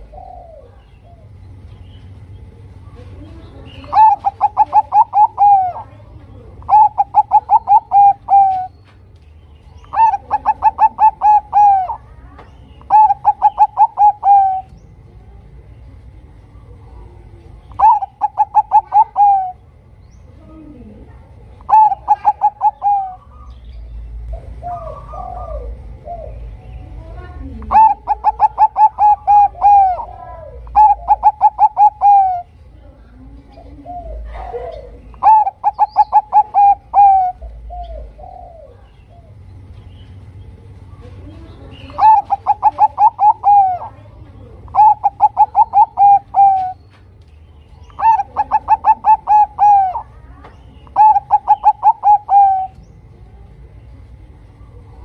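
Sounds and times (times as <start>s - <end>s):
dove cooing: 0.0s - 1.5s, 2.6s - 8.8s, 9.7s - 14.8s, 16.6s - 19.8s, 20.4s - 23.7s, 24.3s - 39.6s, 40.8s - 47.0s, 47.8s - 53.3s.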